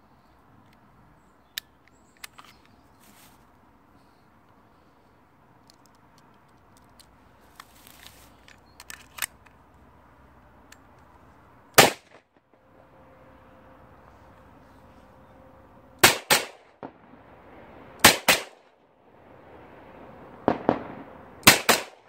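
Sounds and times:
distant gunshots: 11.8s - 12.3s, 16.0s - 17.3s, 18.0s - 18.6s, 20.3s - 22.0s
loud close gunshot: 16.0s - 17.0s, 18.0s - 18.6s, 20.4s - 22.0s.

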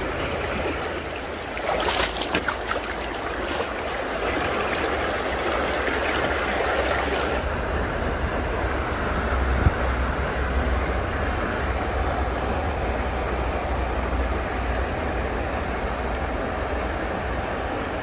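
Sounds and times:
creek water running over rocks: 0.0s - 7.4s
splashes and stone knocks: 0.1s - 7.4s.

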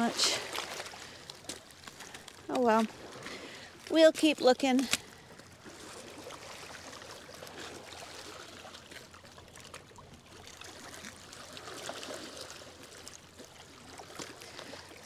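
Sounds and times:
river water lapping on rocks: 0.0s - 15.0s.

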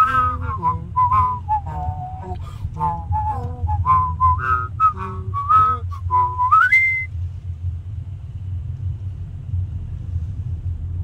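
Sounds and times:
person whistling a melody: 0.0s - 7.1s
car rumble while driving: 0.0s - 11.0s.

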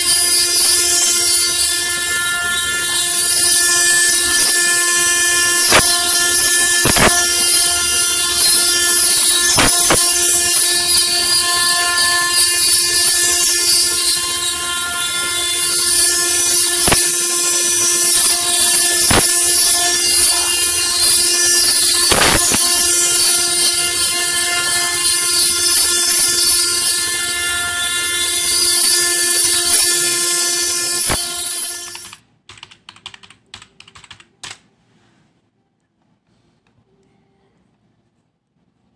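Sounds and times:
router spindle whining: 0.0s - 32.2s
keyboard typing clicks: 32.0s - 34.6s.

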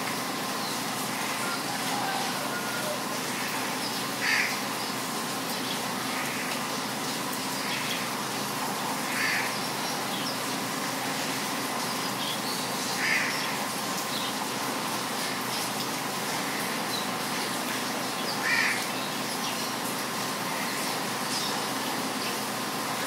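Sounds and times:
heavy rain hissing: 0.0s - 23.0s.

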